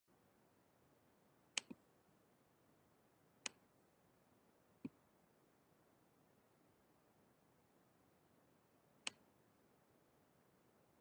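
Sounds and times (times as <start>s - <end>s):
computer mouse clicks: 1.6s - 1.8s.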